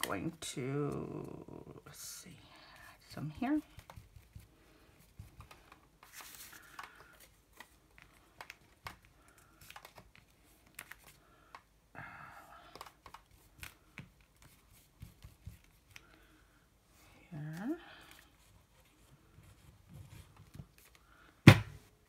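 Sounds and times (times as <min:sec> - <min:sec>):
paper rustling: 0:03.6 - 0:11.3.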